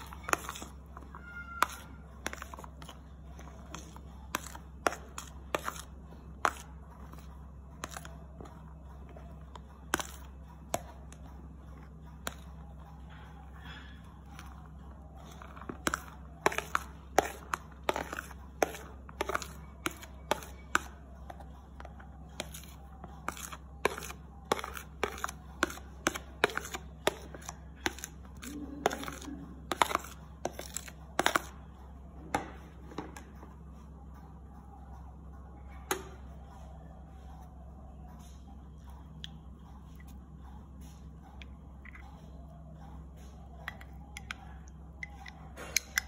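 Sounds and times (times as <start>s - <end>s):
plastic spoon scraping a ceramic plate: 0.0s - 31.6s.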